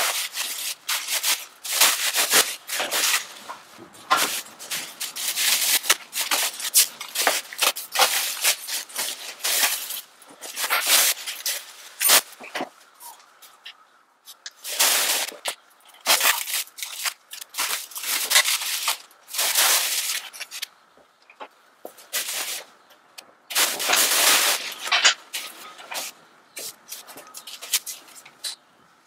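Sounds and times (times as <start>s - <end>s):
plastic bags crinkling and tearing: 0.0s - 3.5s, 4.1s - 12.6s, 14.5s - 20.7s, 23.5s - 28.3s.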